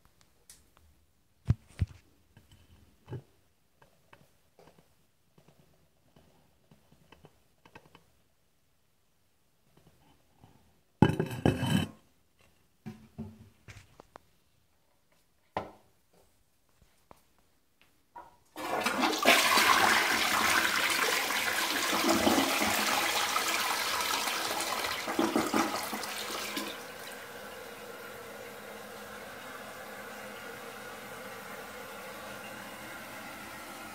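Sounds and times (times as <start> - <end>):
toilet flushing water rush: 18.6 - 33.9.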